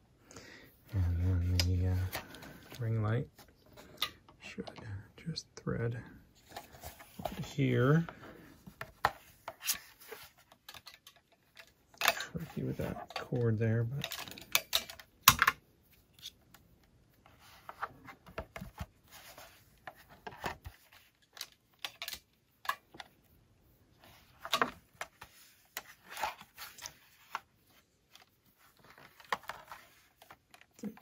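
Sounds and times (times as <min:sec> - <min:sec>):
plastic and metal parts clicking: 0:10.5 - 0:15.6.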